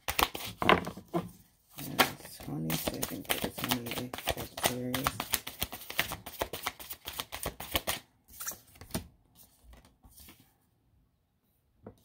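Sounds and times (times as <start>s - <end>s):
cards slapping: 0.0s - 0.8s, 1.8s - 9.1s
cards being shuffled: 0.0s - 1.0s, 1.8s - 10.4s.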